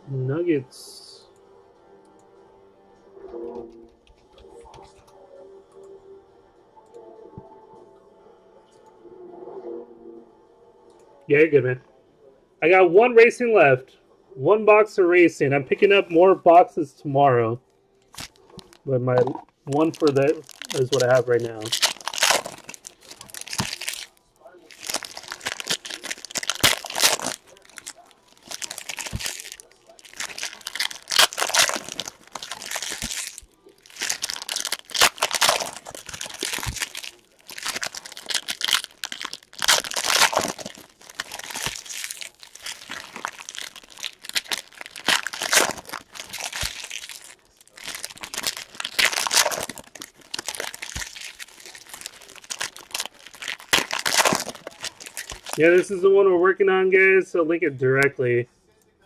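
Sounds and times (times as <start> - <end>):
foil wrappers crinkling and tearing: 18.1 - 56.0.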